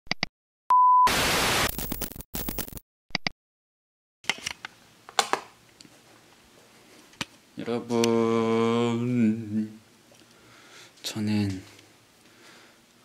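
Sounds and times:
tv static burst: 1.0 - 2.8.

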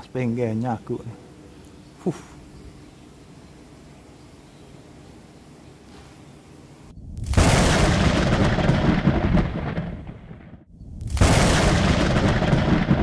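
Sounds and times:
deep rumbling booms: 7.0 - 13.0.

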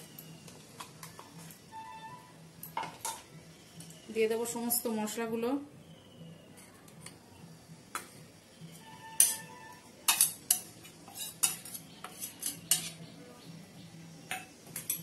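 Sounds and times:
steel spoon clinking in bowl: 9.1 - 13.0.

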